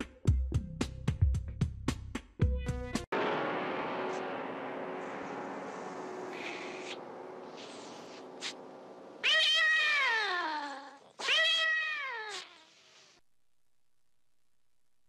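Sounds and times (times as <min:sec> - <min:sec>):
cat yowling: 0:09.2 - 0:12.8.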